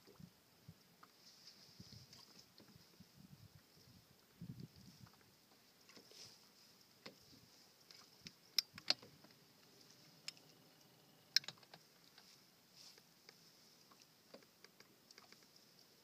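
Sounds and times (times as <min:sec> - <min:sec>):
background hiss: 0:00.0 - 0:16.0
small clicks and taps: 0:07.9 - 0:09.4, 0:11.3 - 0:12.3, 0:13.0 - 0:15.6.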